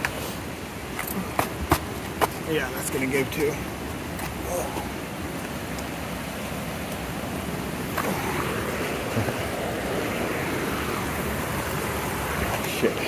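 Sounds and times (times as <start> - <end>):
rushing stream water: 0.0 - 13.0.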